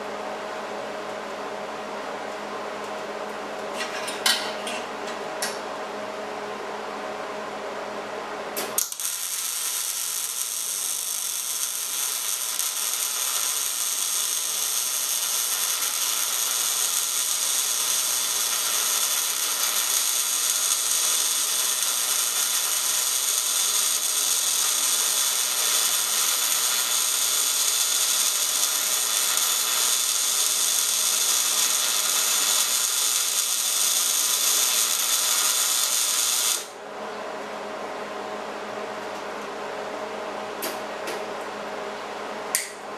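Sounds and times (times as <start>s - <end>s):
welding arc striking clicks: 8.6s - 36.7s
welding arc hissing and crackling: 8.6s - 36.8s.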